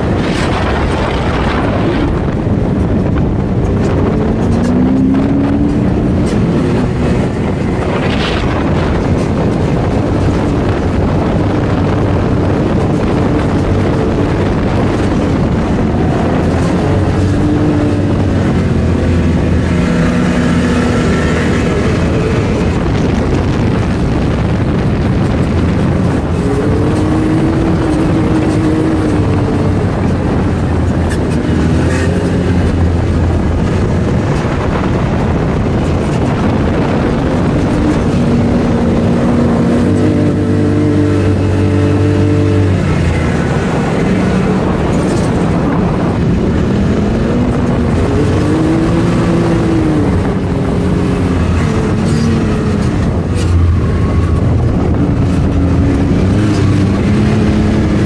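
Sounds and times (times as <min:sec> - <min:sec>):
engine running hard: 0:00.0 - 0:58.0
steady rush of noise: 0:00.0 - 0:58.0.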